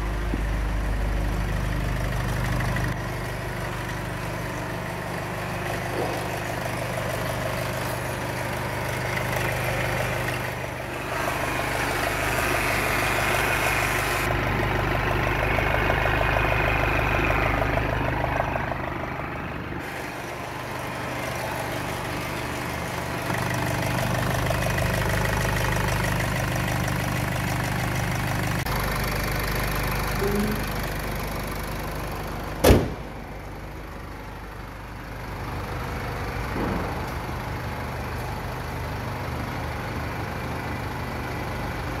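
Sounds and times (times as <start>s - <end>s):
car engine idling: 0.0s - 42.0s
car bonnet slamming shut: 32.6s - 33.2s.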